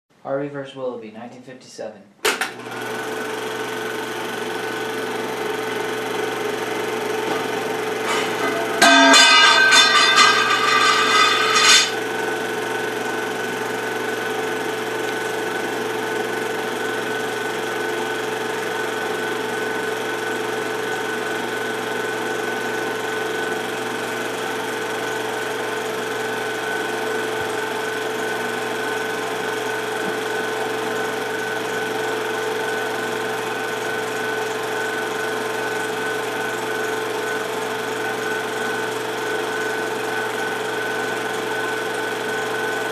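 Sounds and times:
film projector whirring: 2.2 - 42.9
loud buzz: 7.2 - 12.2
constant hum: 8.1 - 11.9.

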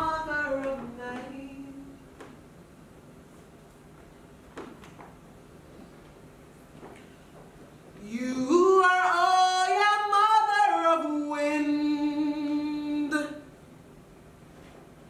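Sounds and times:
woman singing unaccompanied: 0.0 - 2.2, 8.0 - 13.5.

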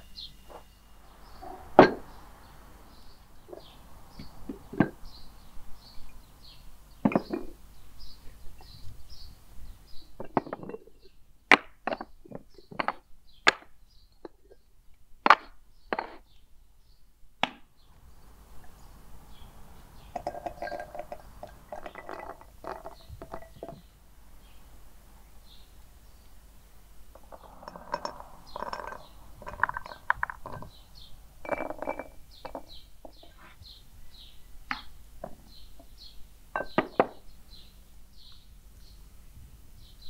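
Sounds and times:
birds chirping: 0.0 - 14.8, 17.7 - 39.1
kitchenware clinking: 20.1 - 23.8, 31.4 - 33.4.

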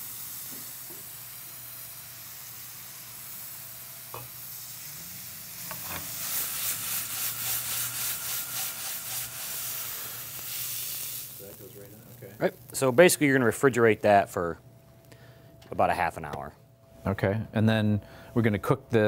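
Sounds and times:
vegetables sizzling in oil: 0.0 - 13.3.

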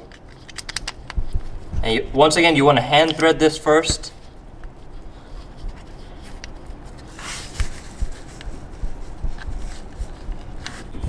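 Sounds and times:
low steady rumble: 7.7 - 11.0.

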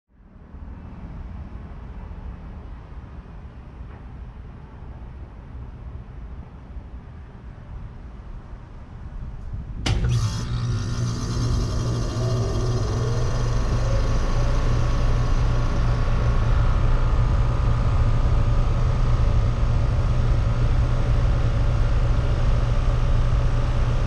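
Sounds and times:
compressor low hum: 8.8 - 24.0
condenser fan spinning up: 9.5 - 24.0.

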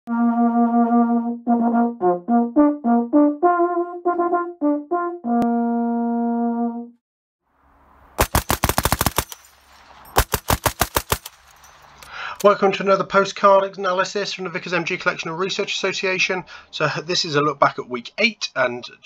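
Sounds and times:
brass call: 0.1 - 7.0
machine-gun fire: 8.2 - 11.6.

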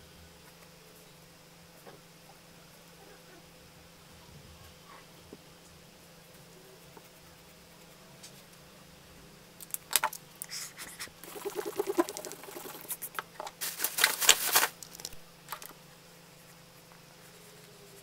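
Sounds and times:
paper rustling: 10.6 - 15.7.

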